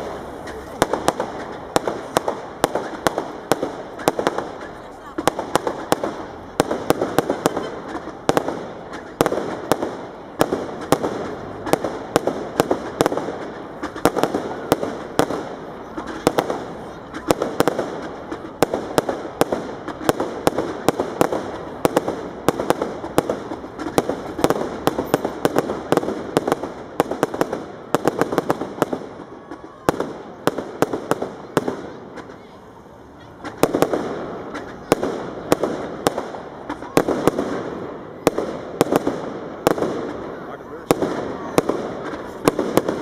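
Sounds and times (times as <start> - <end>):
fireworks bangs: 0.0 - 43.0.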